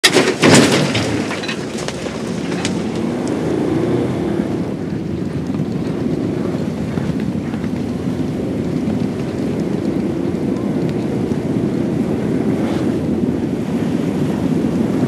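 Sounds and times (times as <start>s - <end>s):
metal starting gates banging open: 0.0s - 3.0s
horses galloping on turf: 4.6s - 12.5s.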